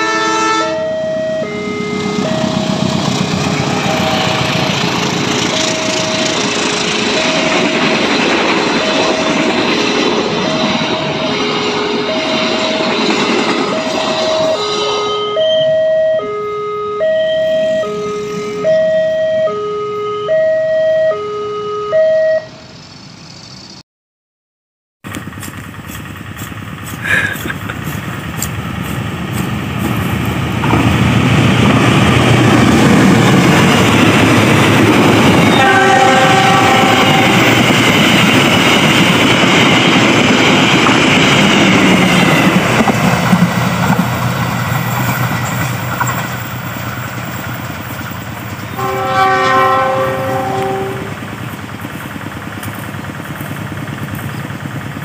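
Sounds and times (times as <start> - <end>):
train horn blast: 0.0 - 7.6, 10.4 - 12.6, 13.7 - 20.4, 35.2 - 37.8, 48.7 - 51.3
train wheels rumbling on rail: 0.0 - 15.8, 25.1 - 55.0
train passing: 0.0 - 21.3, 25.1 - 55.0
two-note warning tone: 0.0 - 22.8, 35.1 - 37.8, 48.7 - 51.2.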